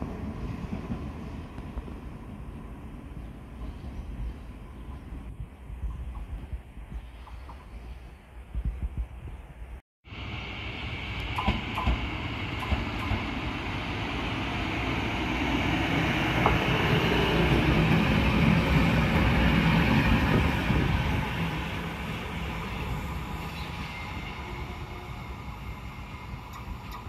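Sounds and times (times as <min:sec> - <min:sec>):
electric locomotive passing: 0:10.1 - 0:27.0.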